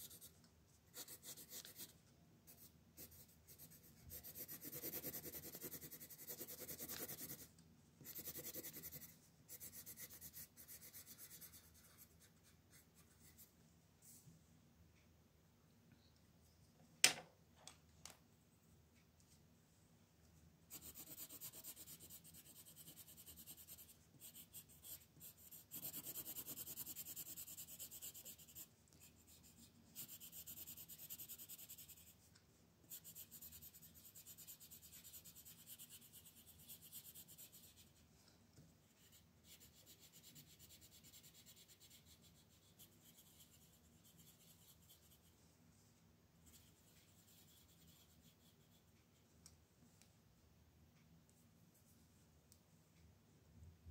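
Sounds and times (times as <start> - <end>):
colored pencil scratching on paper: 0.0 - 13.5, 20.7 - 32.2, 32.9 - 38.1, 38.9 - 45.4, 46.4 - 49.2.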